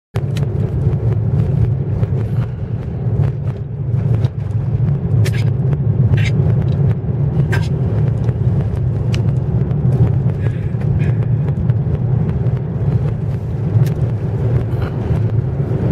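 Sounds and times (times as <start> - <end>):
wind buffeting microphone: 0.2 - 15.9.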